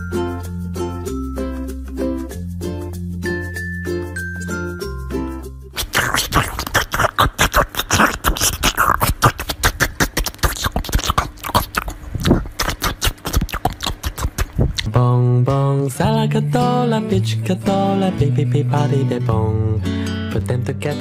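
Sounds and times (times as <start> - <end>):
dog crunching watermelon: 5.8 - 14.9.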